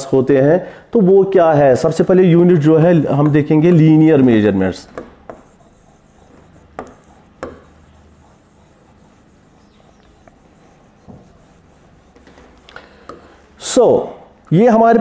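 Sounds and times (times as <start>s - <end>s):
writing on glass touchscreen: 2.7s - 13.4s.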